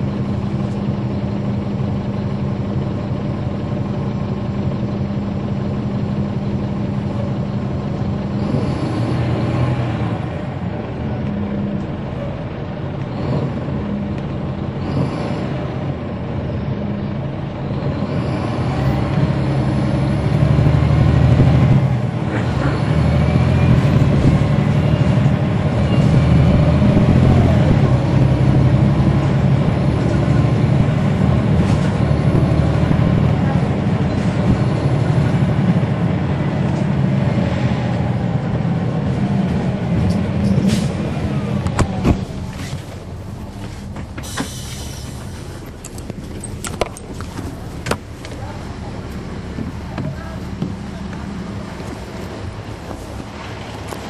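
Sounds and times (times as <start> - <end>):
bus diesel engine running: 0.0 - 54.0
air hisses: 44.2 - 45.4.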